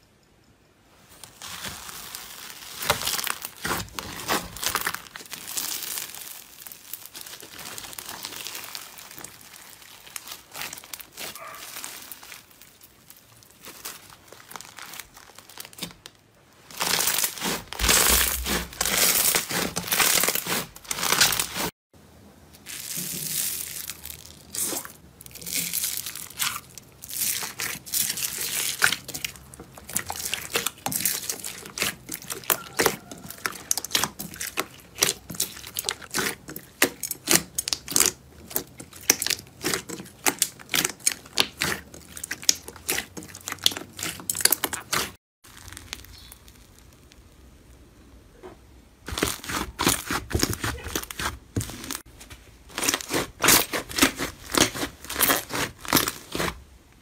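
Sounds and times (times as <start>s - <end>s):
slime crackling: 1.2s - 21.7s, 22.6s - 47.8s, 49.0s - 56.6s
slime beads popping: 16.7s - 21.6s.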